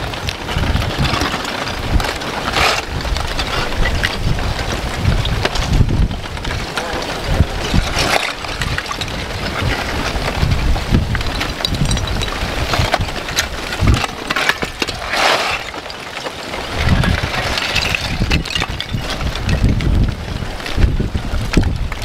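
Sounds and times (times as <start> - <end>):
lava crust crackling and clinking: 0.0 - 22.0
wind buffeting microphone: 0.0 - 22.0
rattling slide of breaking blocks: 0.5 - 4.4, 6.6 - 19.9.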